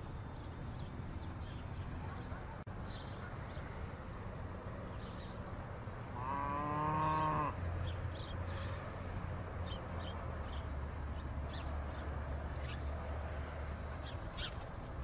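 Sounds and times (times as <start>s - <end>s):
cow mooing: 6.2s - 7.6s.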